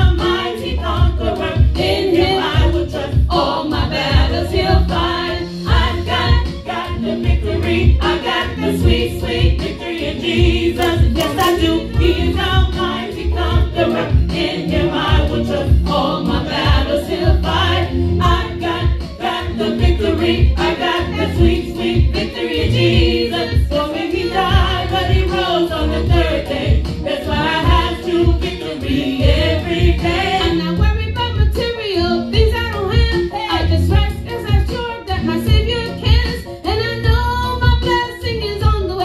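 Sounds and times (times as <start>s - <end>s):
group singing gospel song: 0.0s - 39.0s
heavy repeating bass beat: 4.0s - 31.6s.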